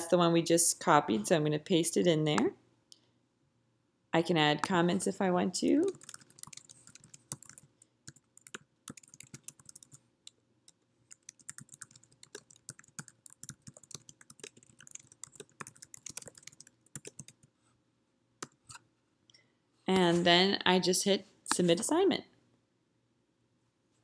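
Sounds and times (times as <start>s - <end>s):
keyboard keys clicking: 5.9s - 10.0s, 11.1s - 17.5s.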